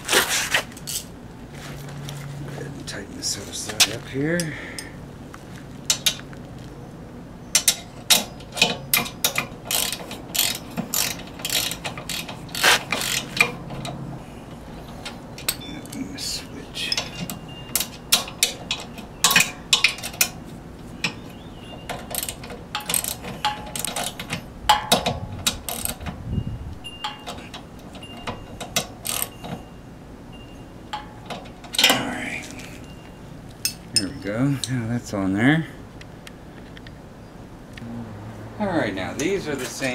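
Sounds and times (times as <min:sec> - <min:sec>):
ratchet wrench clicking: 0:07.6 - 0:13.6, 0:22.1 - 0:24.2, 0:25.4 - 0:26.0, 0:28.7 - 0:29.4.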